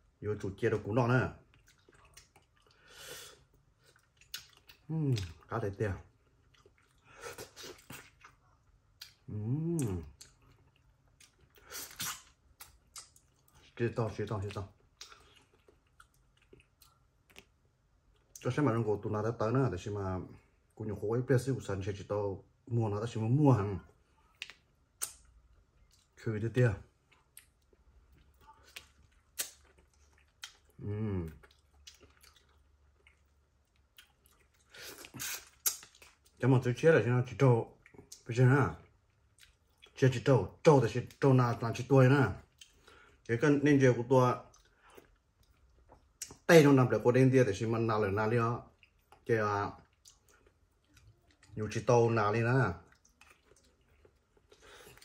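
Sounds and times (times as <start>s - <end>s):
lip smacks and chewing: 1.4s - 18.6s, 23.9s - 26.2s, 26.9s - 36.4s, 37.7s - 40.2s, 42.4s - 43.3s, 44.4s - 46.5s, 48.7s - 51.9s, 52.8s - 55.0s
person humming: 9.3s - 10.0s.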